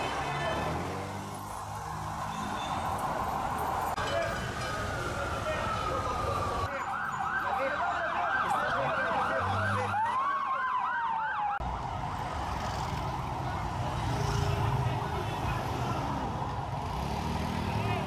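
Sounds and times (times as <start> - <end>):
street traffic: 0.0 - 18.0
siren wailing: 4.6 - 12.3
siren yelping: 4.9 - 11.6.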